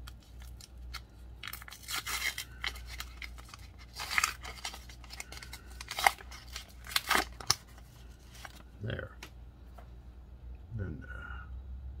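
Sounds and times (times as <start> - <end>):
foil wrapper crinkling and tearing: 0.0 - 8.7.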